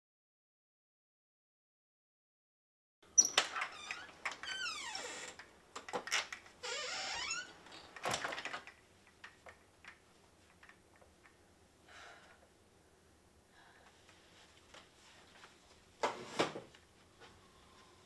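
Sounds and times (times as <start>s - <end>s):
door hinges creaking: 3.1s - 8.8s.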